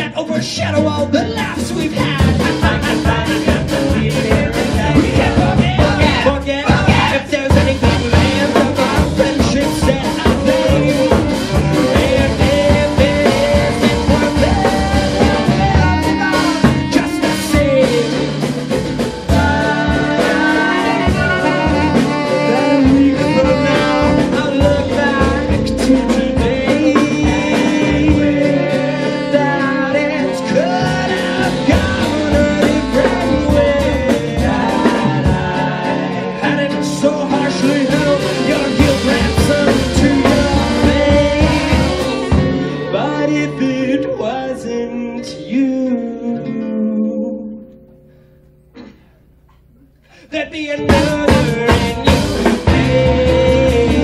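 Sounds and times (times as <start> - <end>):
swing band playing: 0.0 - 54.0
saxophone: 1.0 - 50.2, 50.8 - 54.0.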